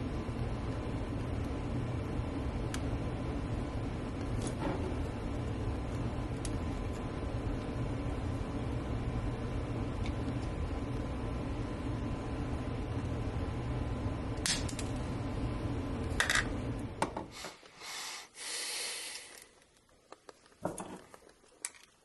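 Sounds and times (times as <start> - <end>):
steady low hum: 0.0 - 22.0
short hiss: 17.4 - 19.5.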